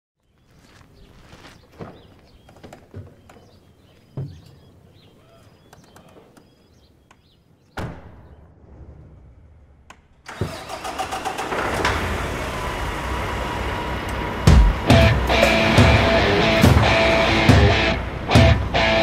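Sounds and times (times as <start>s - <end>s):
truck diesel engine starting: 10.3s - 19.0s.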